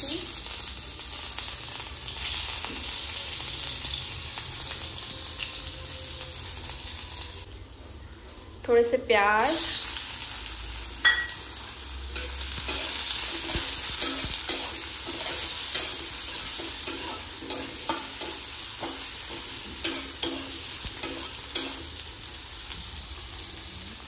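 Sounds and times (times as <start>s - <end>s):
onions sizzling in hot oil: 0.0s - 24.0s
spatula scraping and tapping pan: 12.2s - 21.9s.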